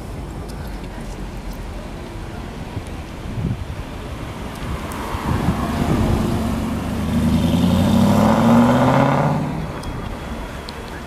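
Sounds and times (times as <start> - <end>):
sports car engine passing: 4.3 - 10.2.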